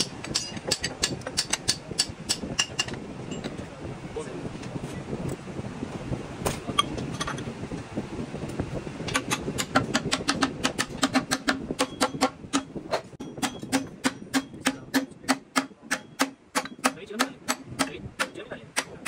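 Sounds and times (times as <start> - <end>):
hammer tapping on steel shaft: 0.0 - 3.0, 9.1 - 19.0.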